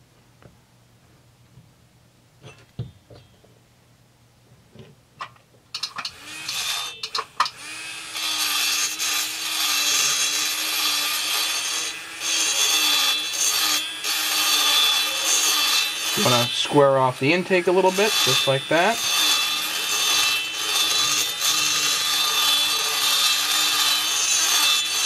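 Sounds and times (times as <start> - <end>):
high-speed grinder whining: 5.8 - 25.0.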